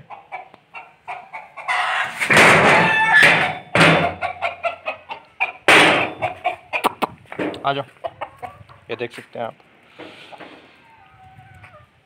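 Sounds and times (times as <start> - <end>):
chickens clucking: 0.0 - 12.0
metal door rattling and banging: 2.2 - 4.3, 5.7 - 6.3.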